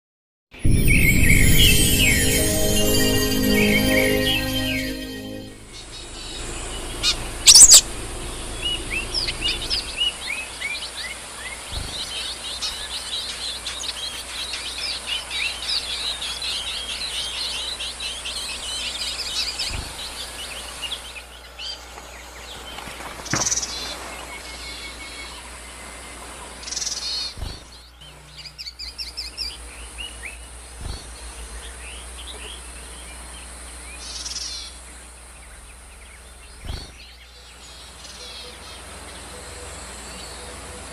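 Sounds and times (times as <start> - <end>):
birds chirping: 0.6 - 11.0.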